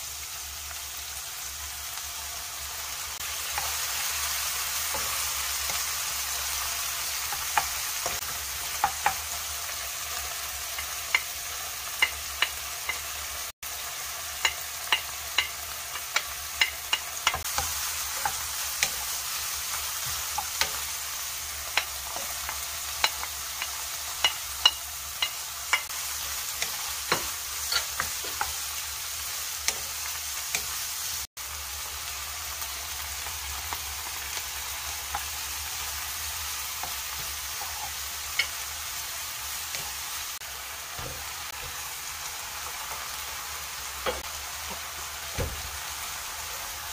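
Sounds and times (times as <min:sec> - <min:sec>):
food sizzling in oil: 0:00.0 - 0:46.9
spatula tapping a wok: 0:07.2 - 0:09.4, 0:10.2 - 0:13.2, 0:14.4 - 0:19.2, 0:19.8 - 0:21.0, 0:21.6 - 0:28.6, 0:29.6 - 0:30.8, 0:36.8 - 0:38.6, 0:44.0 - 0:45.7.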